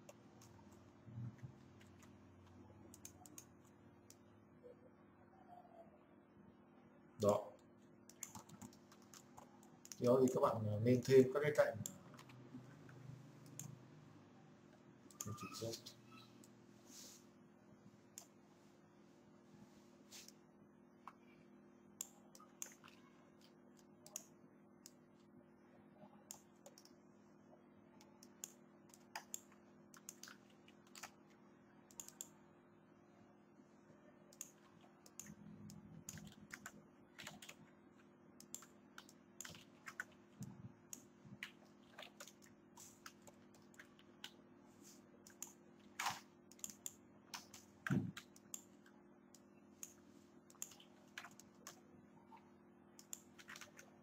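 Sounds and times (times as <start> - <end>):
computer keys and mouse clicking: 0.0 - 4.2, 7.2 - 10.6, 11.8 - 13.8, 15.1 - 16.5, 22.0 - 25.0, 26.3 - 27.0, 28.0 - 31.3, 31.9 - 32.4, 34.3 - 37.7, 38.4 - 44.4, 45.2 - 51.9, 53.0 - 54.0.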